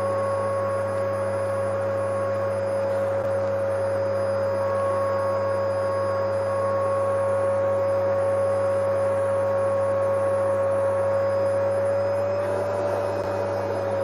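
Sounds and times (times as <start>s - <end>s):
vacuum cleaner running: 0.0s - 14.0s.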